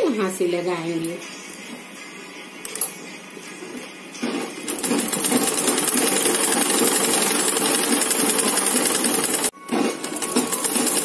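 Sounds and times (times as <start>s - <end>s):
sewing machine stitching: 4.2s - 11.0s.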